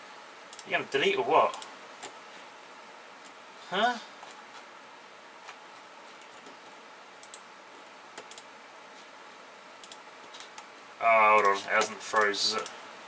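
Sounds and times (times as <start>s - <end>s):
steady low hiss: 0.0s - 13.0s.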